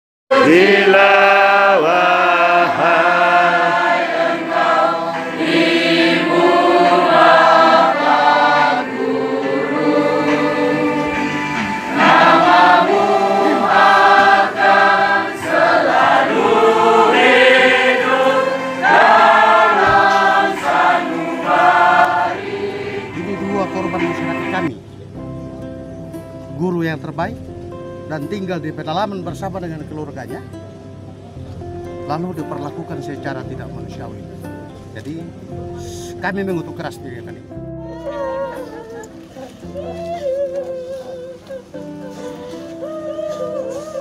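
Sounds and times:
choir singing: 0.3s - 24.7s.

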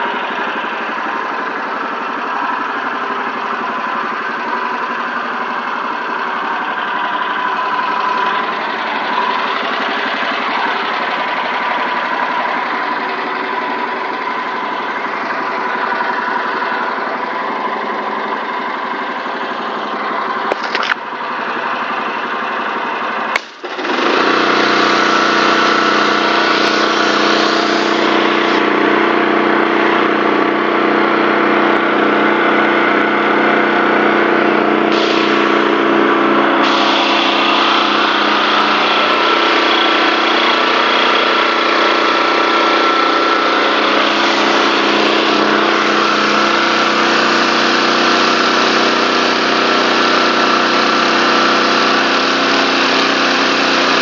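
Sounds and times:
pressure washer engine running: 0.0s - 54.0s
water jet hissing on paving stones: 36.6s - 38.8s.

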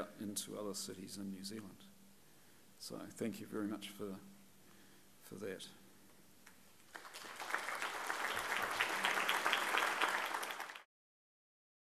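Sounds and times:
audience applauding: 6.9s - 10.9s.

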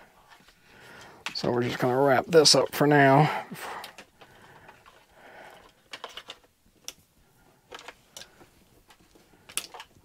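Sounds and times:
wires rustling: 0.0s - 10.0s.

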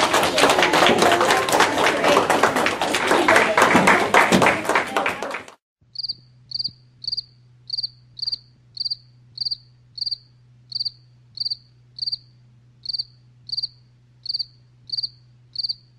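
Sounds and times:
cricket chirping: 5.9s - 15.9s
steady low hum: 5.9s - 15.9s.

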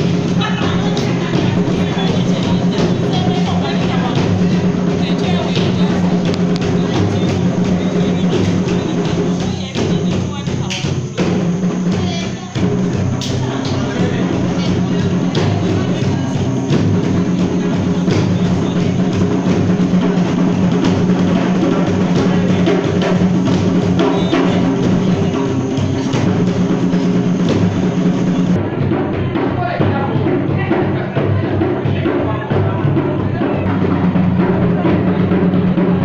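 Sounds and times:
steady low hum: 0.0s - 28.8s
hand drums playing dance music: 0.0s - 36.0s.

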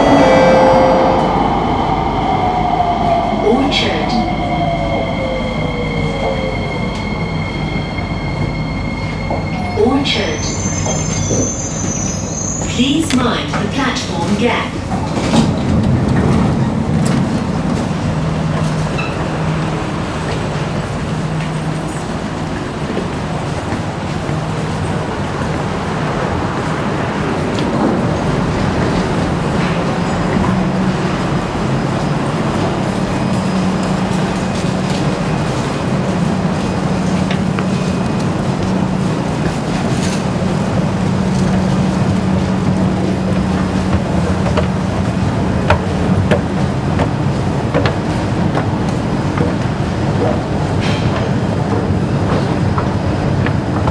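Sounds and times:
escalator humming: 0.0s - 10.4s
station din: 0.0s - 10.7s
train and platform hum: 0.0s - 53.9s
passengers' footsteps: 8.4s - 53.9s.

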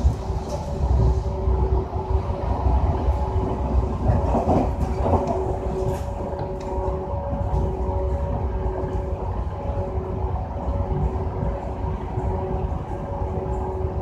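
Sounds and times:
train rattling: 0.0s - 14.0s
train rumbling on track: 0.0s - 14.0s.

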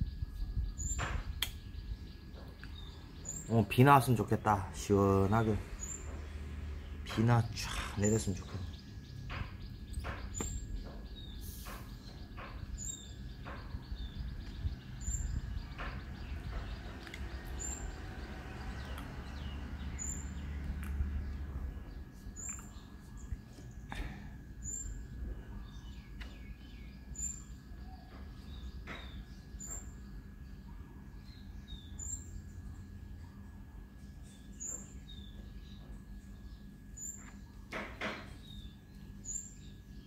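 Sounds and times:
birds chirping: 0.0s - 40.0s.

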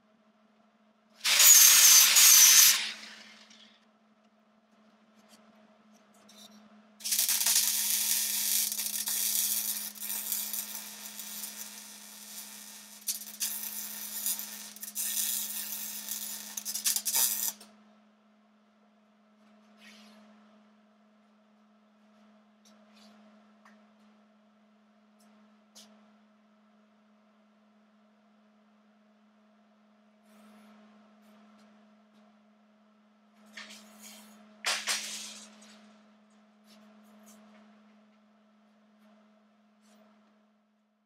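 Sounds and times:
arc welding crackling hiss: 1.2s - 3.6s, 7.0s - 17.6s.

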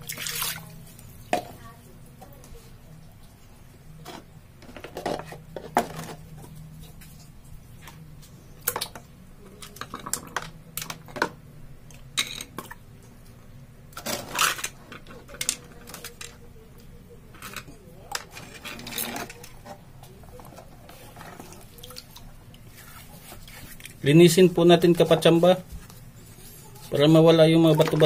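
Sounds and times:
plastic parts clattering: 14.0s - 16.4s, 17.4s - 19.8s.

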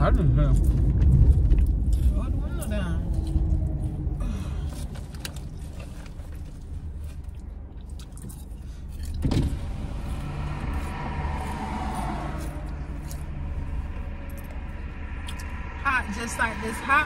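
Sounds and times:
car engine rumble inside cabin: 0.0s - 17.0s.

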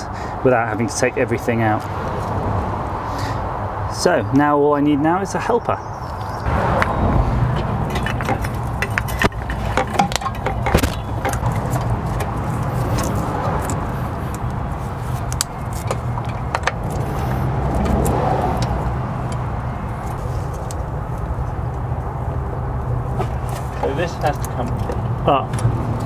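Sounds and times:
steady low rumble: 6.4s - 26.0s
metal clinks and knocks: 7.5s - 13.8s.

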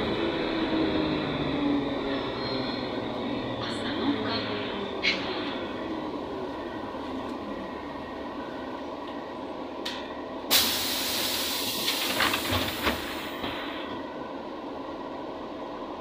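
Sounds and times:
bus cabin hum: 0.0s - 16.0s
compressed air hiss: 10.5s - 12.2s.

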